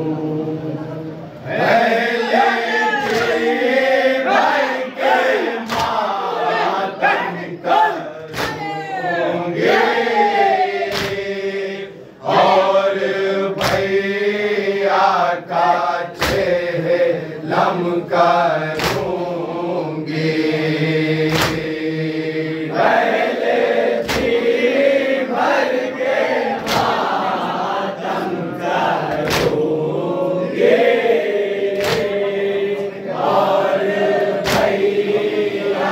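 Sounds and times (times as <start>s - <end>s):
men chanting in unison: 0.0s - 35.9s
hand slaps on chest: 3.0s - 3.4s, 5.7s - 6.0s, 8.3s - 8.7s, 10.9s - 11.2s, 13.6s - 13.9s, 16.2s - 16.5s, 18.7s - 19.1s, 21.3s - 21.7s, 24.0s - 24.4s, 26.6s - 27.0s, 29.1s - 29.6s, 31.8s - 32.2s, 34.4s - 34.8s.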